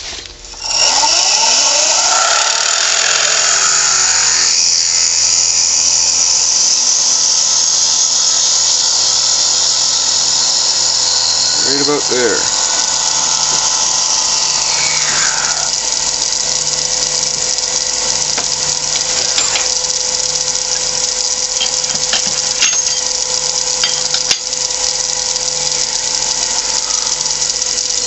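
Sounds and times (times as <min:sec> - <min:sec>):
drill bit scraping out of wood: 0:00.0 - 0:28.0
wood lathe humming: 0:00.0 - 0:28.0.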